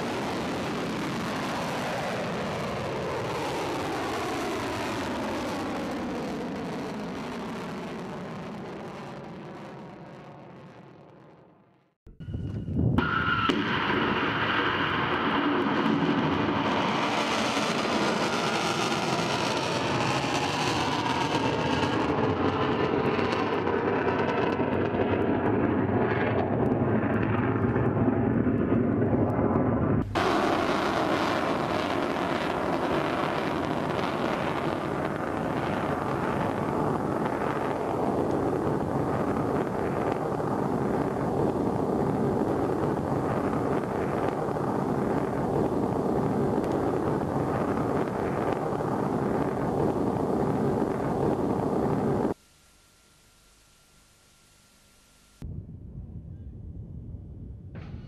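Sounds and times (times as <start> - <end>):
rushing air noise: 29.2 - 52.4.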